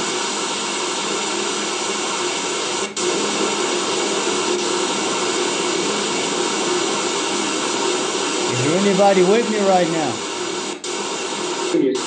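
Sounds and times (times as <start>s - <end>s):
radio white-noise static: 8.2s - 12.0s.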